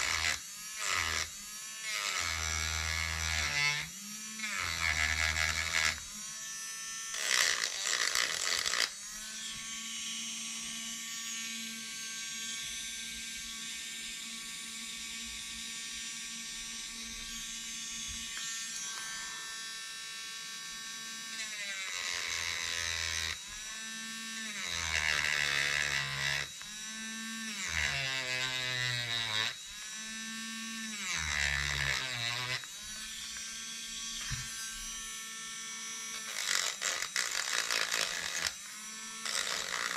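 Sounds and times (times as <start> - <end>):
rasping grinding: 0.0 - 6.2, 7.2 - 8.9, 36.0 - 39.9
rotary tool whining: 0.0 - 15.5, 16.4 - 39.9.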